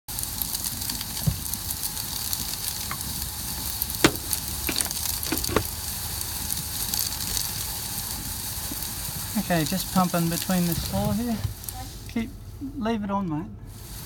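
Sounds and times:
sharp knocks: 0:04.0 - 0:05.7.

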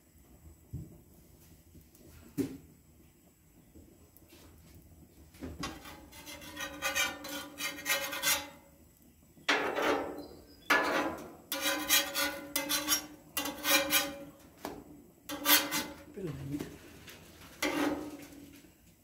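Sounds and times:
metal spatula scraping griddle: 0:05.6 - 0:08.7, 0:09.5 - 0:18.7.

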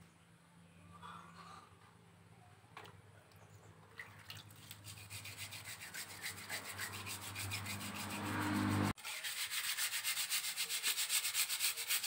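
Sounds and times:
hand scraping strokes: 0:04.5 - 0:12.0.

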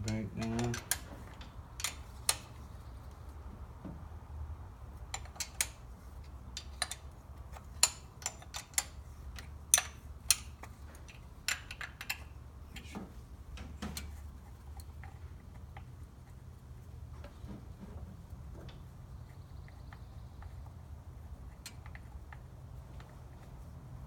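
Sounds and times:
low steady hum: 0:00.0 - 0:24.0
wrench clicking against metal: 0:01.8 - 0:02.5, 0:07.6 - 0:12.3.

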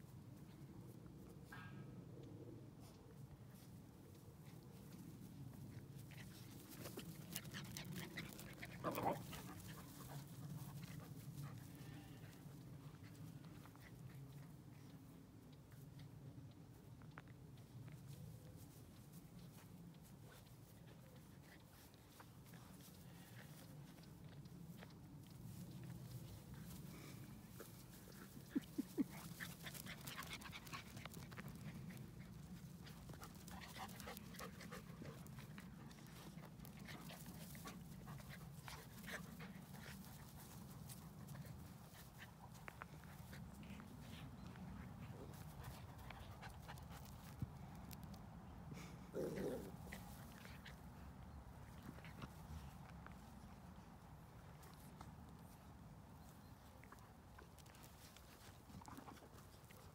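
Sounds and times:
dogs scuffling on grass: 0:03.5 - 0:16.0, 0:16.7 - 0:48.4.

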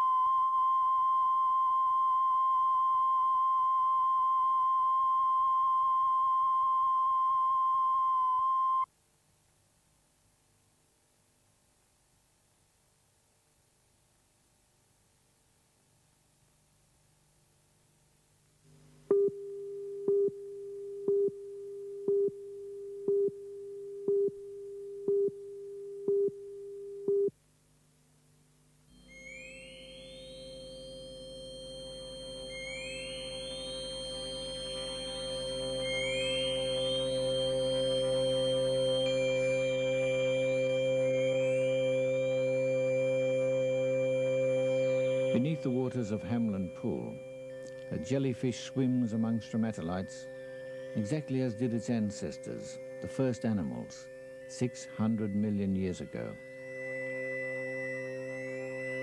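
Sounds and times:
steady high test tone: 0:00.0 - 0:08.9, 0:28.9 - 0:59.0
faint tape hiss: 0:00.0 - 0:59.0.

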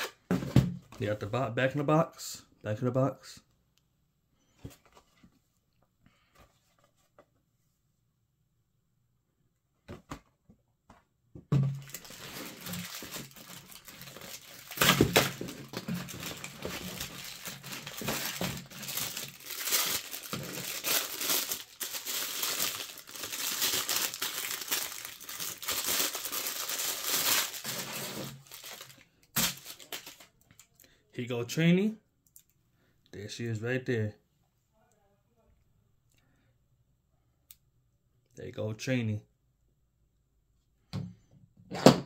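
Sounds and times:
paper crinkling and tearing: 0:11.8 - 0:30.3.

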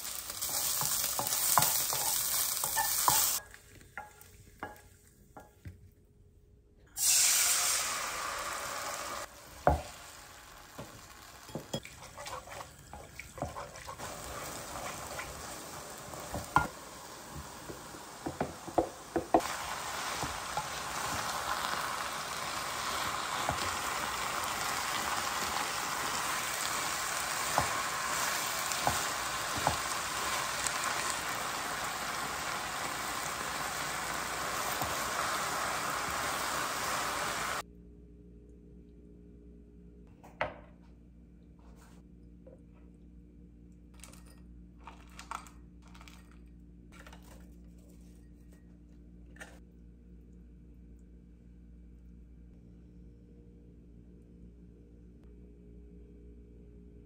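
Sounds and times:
food sizzling in a wok: 0:00.0 - 0:03.5, 0:07.0 - 0:37.6
spatula scraping and knocking pan: 0:00.4 - 0:03.4, 0:11.5 - 0:15.3, 0:27.4 - 0:30.3.

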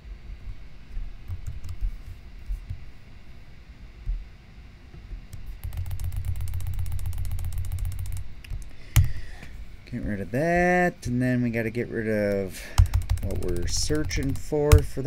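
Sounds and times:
low hum: 0:00.0 - 0:15.0
keyboard and mouse clicks: 0:05.3 - 0:09.2, 0:12.3 - 0:14.9.

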